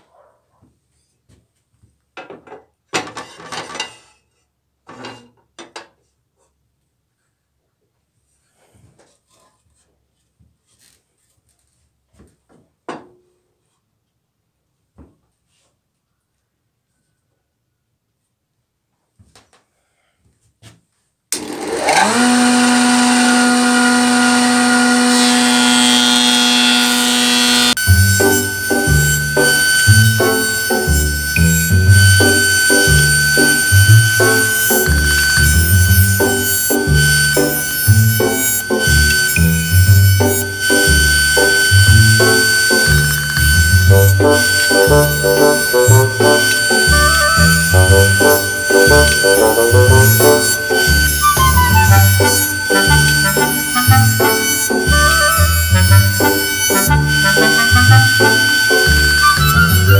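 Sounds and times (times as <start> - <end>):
metal clanking and scraping: 3.0 - 4.3
jointer motor whining: 21.3 - 59.9
knives cutting wood board: 27.5 - 58.4.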